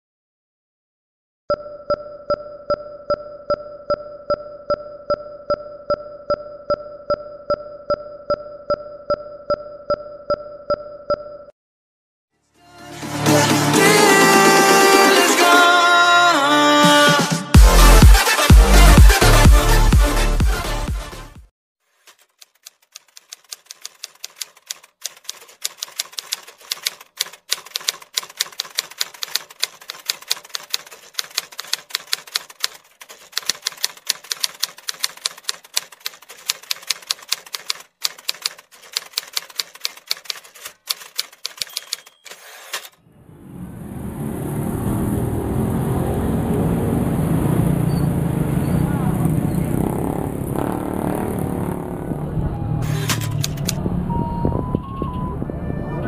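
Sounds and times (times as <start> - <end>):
typewriter keys clacking: 22.0 - 43.0
street traffic: 40.1 - 56.0.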